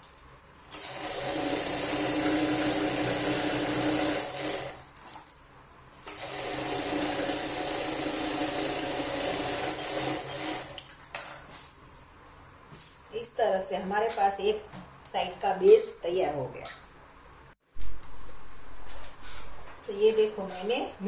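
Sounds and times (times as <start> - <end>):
sewing machine running: 0.7 - 4.8, 6.1 - 10.8.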